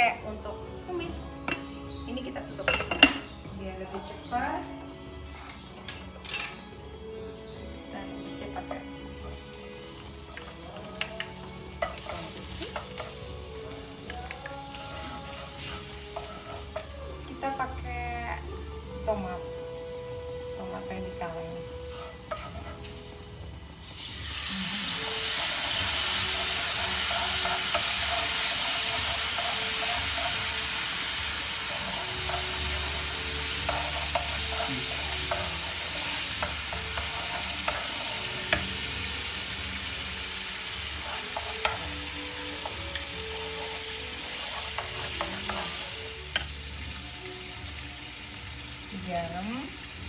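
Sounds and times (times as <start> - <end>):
tomatoes sizzling in frying pan: 8.4 - 50.0
spatula tapping pan: 10.4 - 13.2, 22.3 - 22.8, 26.2 - 30.5, 31.7 - 38.8, 41.0 - 41.9
spatula scraping pan: 14.8 - 16.9, 21.9 - 23.1, 25.2 - 38.8, 40.8 - 46.5.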